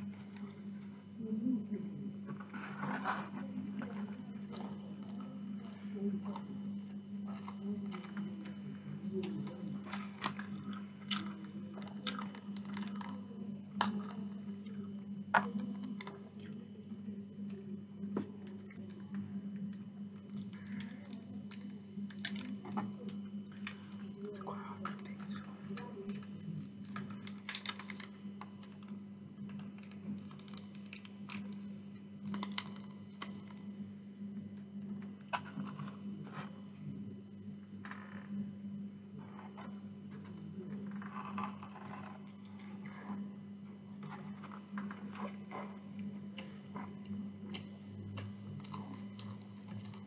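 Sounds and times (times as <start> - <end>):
low electrical hum: 0.0 - 50.0
chewing: 9.9 - 13.2
food sachet crinkling and tearing: 26.9 - 28.8, 29.5 - 31.5, 32.2 - 33.6.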